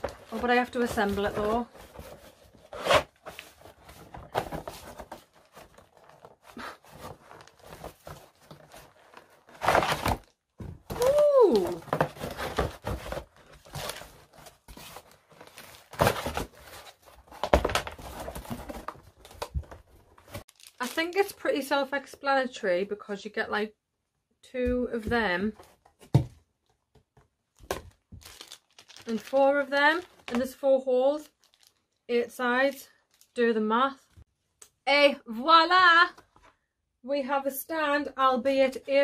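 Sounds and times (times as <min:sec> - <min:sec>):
plastic packaging crinkling: 0:11.0 - 0:21.5, 0:27.8 - 0:30.5, 0:31.2 - 0:32.0.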